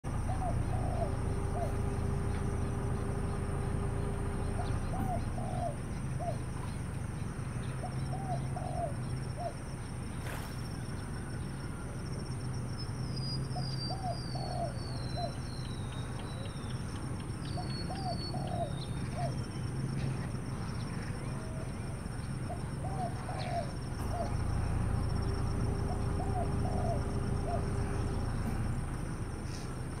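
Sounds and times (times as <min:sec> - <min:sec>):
doves cooing: 0:00.0 - 0:30.0
steady low hum: 0:00.0 - 0:30.0
small bird high chirps: 0:12.8 - 0:24.4.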